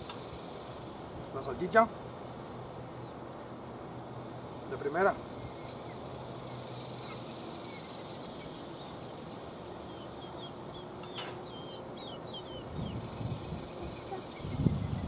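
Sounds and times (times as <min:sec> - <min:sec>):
faint insect buzz: 0:00.0 - 0:15.0
small birds chirping: 0:02.6 - 0:03.3, 0:04.2 - 0:15.0.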